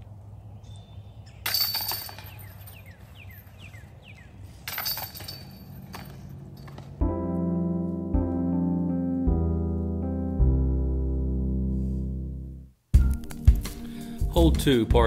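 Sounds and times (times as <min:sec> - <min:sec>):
disc golf basket chains rattling: 0:01.4 - 0:03.8, 0:04.5 - 0:07.0
piano music: 0:06.9 - 0:15.0.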